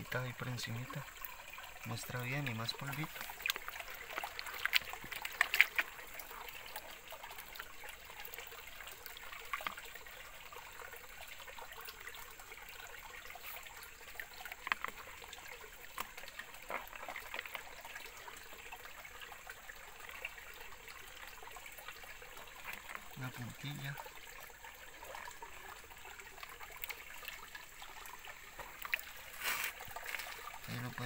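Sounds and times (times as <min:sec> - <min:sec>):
water sloshing in a pan: 0:00.0 - 0:31.0
sharp splashes: 0:02.8 - 0:06.8.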